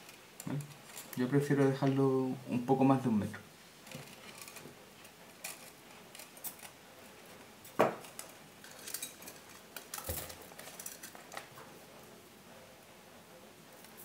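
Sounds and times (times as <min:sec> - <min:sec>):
wire clinking and scraping: 0:00.0 - 0:01.8, 0:03.8 - 0:06.8, 0:07.6 - 0:11.5.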